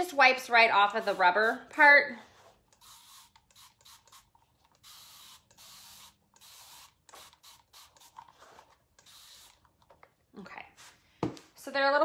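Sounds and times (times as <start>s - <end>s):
spray bottle hissing: 2.7s - 8.2s, 9.0s - 9.7s.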